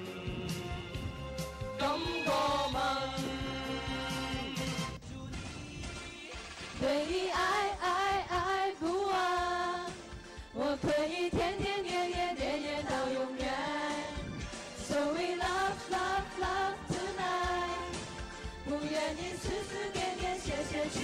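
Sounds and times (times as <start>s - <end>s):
music: 0.0s - 21.0s
students singing together: 1.8s - 4.4s, 6.8s - 10.0s, 10.6s - 14.2s, 14.8s - 18.0s, 18.6s - 21.0s.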